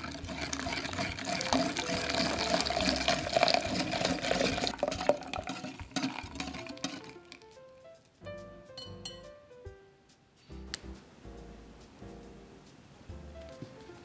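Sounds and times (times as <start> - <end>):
liquid pouring and splashing: 0.0 - 7.5
whisk clicking against glass: 0.0 - 7.6.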